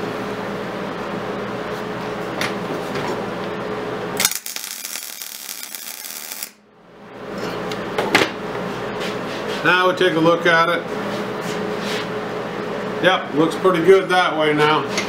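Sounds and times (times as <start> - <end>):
welding arc crackling and sizzling: 4.2 - 6.6
welding arc starting crack: 4.2 - 6.6.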